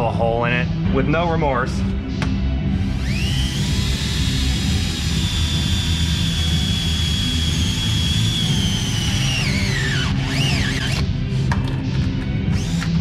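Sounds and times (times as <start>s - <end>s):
cordless drill whining: 2.8s - 11.1s, 12.5s - 13.0s.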